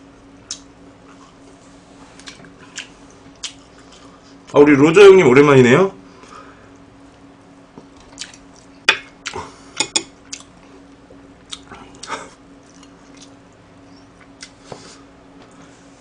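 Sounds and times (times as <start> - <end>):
mouth sounds of eating: 11.4 - 14.6.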